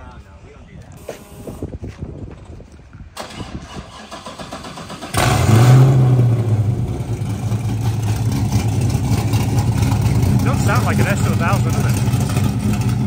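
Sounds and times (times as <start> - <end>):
engine starter cranking: 3.2 - 5.8
car engine revving and idling: 4.8 - 13.0.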